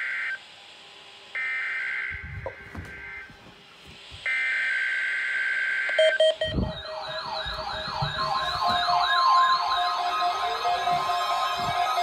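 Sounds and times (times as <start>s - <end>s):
warbling siren-like alarm tones: 4.3s - 12.0s
short beeps: 5.9s - 10.8s
high data tones: 5.9s - 12.0s.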